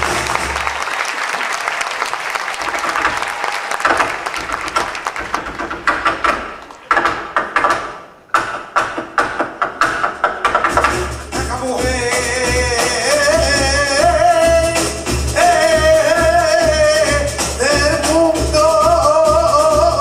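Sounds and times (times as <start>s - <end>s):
rhythmic percussive strikes: 0.0s - 0.8s, 2.6s - 20.0s
audience applause: 0.0s - 7.0s.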